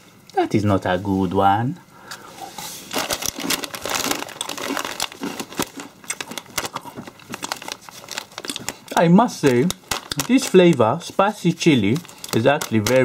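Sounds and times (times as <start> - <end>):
crisp packet crinkling: 2.9 - 13.0.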